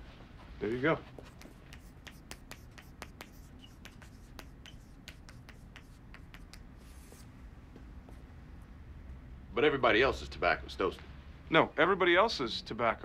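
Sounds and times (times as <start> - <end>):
chalk tapping and scratching: 1.0 - 7.3.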